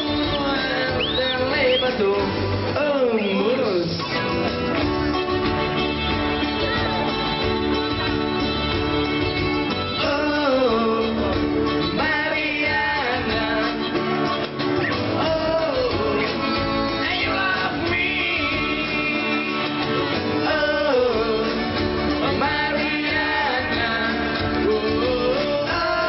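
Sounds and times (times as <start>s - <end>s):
man singing: 0.0s - 4.5s, 9.9s - 26.0s
acoustic guitars: 0.0s - 26.0s.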